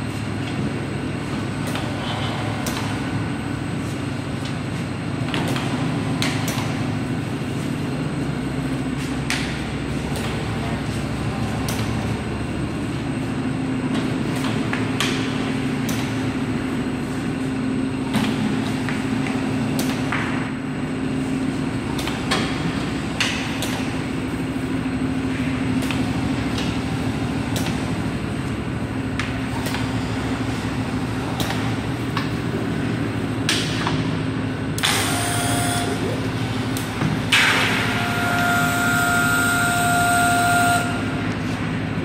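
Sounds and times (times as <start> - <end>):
machine humming: 20.5 - 42.0.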